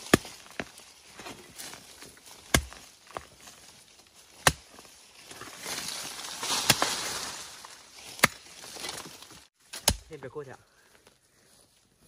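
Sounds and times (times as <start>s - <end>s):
hoe chopping into soil: 0.0s - 1.4s, 2.4s - 3.4s, 4.3s - 4.9s, 6.4s - 7.1s, 8.1s - 9.1s, 9.7s - 10.1s
earth and leaves rustling: 0.0s - 12.0s.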